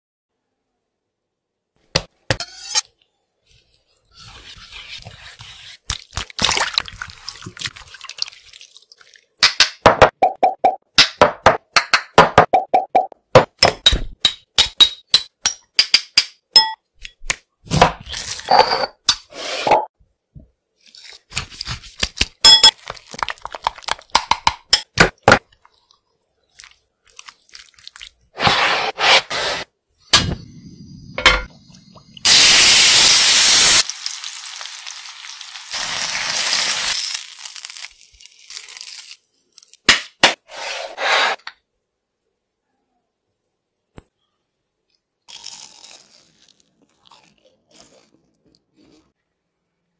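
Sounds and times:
hands mixing chicken in marinade: 0:03.5 - 0:09.4, 0:26.5 - 0:28.6
chicken sizzling: 0:32.2 - 0:39.0.

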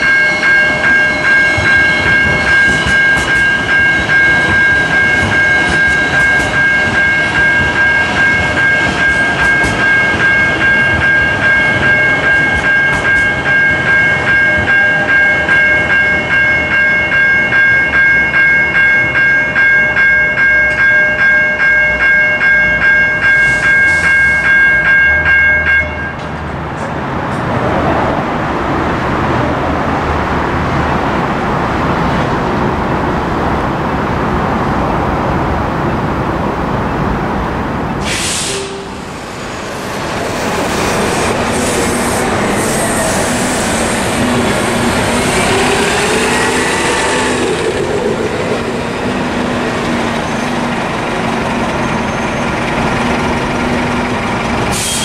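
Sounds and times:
railroad crossing bells: 0:00.0 - 0:27.4, 0:37.9 - 0:54.9
light rail train rumble: 0:00.0 - 0:55.0
road traffic: 0:21.8 - 0:55.0
vehicle engines: 0:26.2 - 0:55.0
short sharp hiss: 0:38.0 - 0:38.7.

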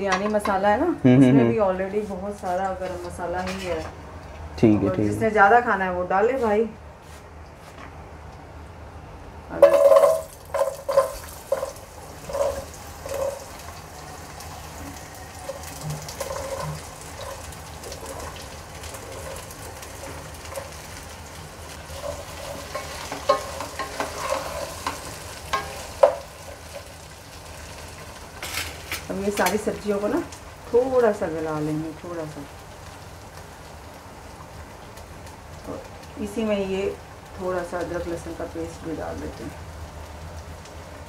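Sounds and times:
vegetables sizzling in oil: 0:09.5 - 0:41.0.

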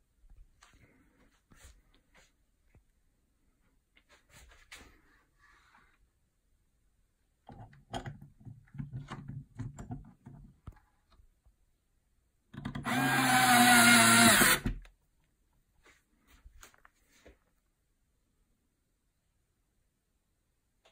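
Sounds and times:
cordless screwdriver driving screws: 0:12.8 - 0:14.7.

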